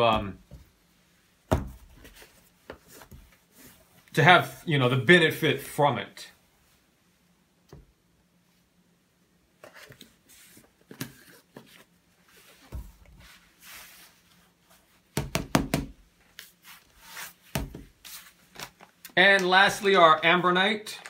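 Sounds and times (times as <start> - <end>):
plastic tubs knocking on wood: 15.2 - 16.0.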